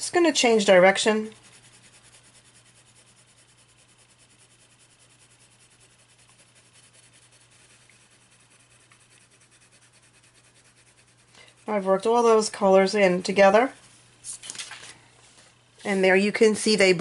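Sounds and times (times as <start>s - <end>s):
pencil scratching on paper: 0.1s - 12.9s.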